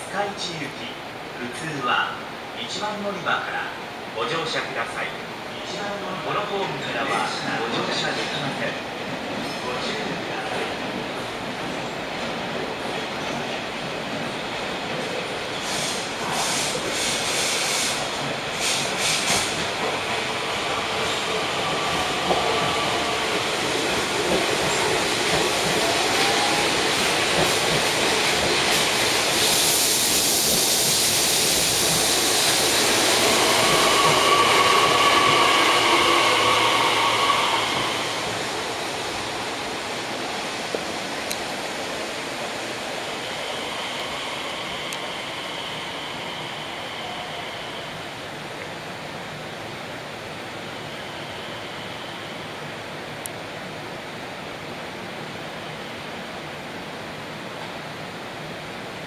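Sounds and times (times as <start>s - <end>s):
train running noise: 4.7s - 59.0s
train wheels clicking over rail joints: 23.8s - 35.6s
high squealing brakes: 33.3s - 38.2s, 50.6s - 52.6s.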